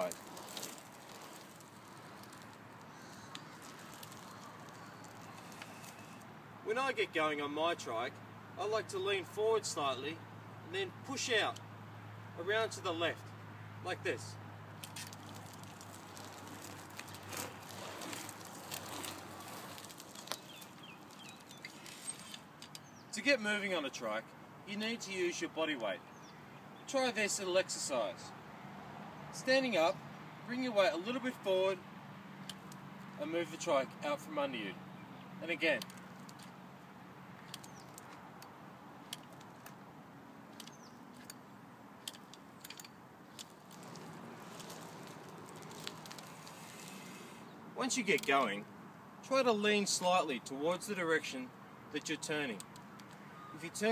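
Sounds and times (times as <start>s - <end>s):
scooter rolling over asphalt: 0.0s - 6.2s, 14.8s - 23.0s, 42.0s - 48.4s
light clicks and rattles: 42.0s - 46.6s.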